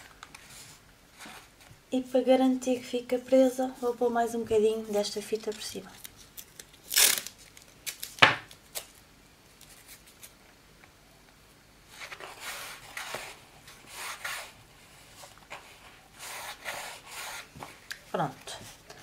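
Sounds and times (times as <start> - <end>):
adhesive tape ripping: 5.4 - 9.0.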